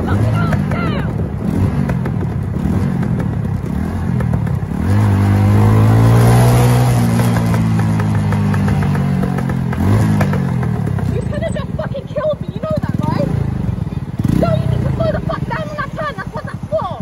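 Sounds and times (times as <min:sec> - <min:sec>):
rushing wind noise: 0:00.0 - 0:08.7
motorcycle engine: 0:00.0 - 0:17.0.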